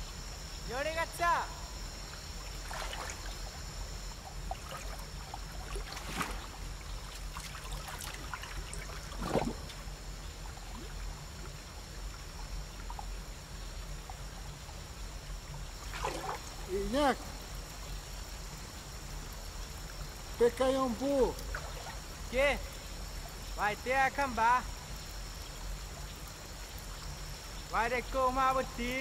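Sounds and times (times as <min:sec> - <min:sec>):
faint high-pitched hum: 0:00.0 - 0:29.0
water trickling and lapping: 0:01.8 - 0:28.9
brief splashes: 0:02.6 - 0:03.3, 0:05.7 - 0:06.6, 0:07.4 - 0:09.8, 0:15.8 - 0:16.7.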